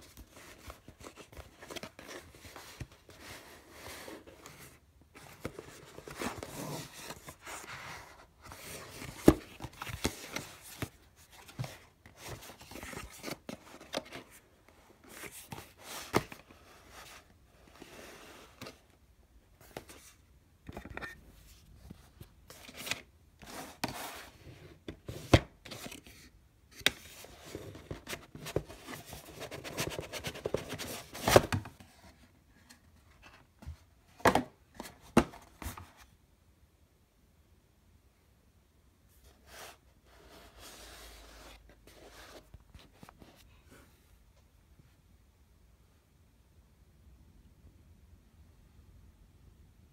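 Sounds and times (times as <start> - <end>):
cardboard box rustling and scraping: 0.2 - 14.4.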